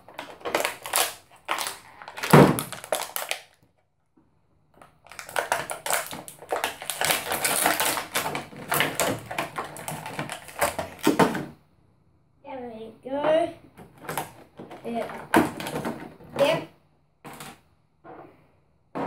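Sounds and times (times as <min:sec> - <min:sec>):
plastic bag crinkling: 0:00.0 - 0:03.6, 0:04.8 - 0:11.4.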